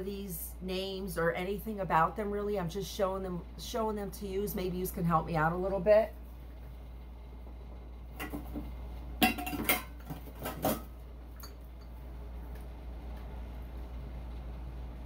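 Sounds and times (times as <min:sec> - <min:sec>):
beer cans clinking: 0:09.2 - 0:11.9.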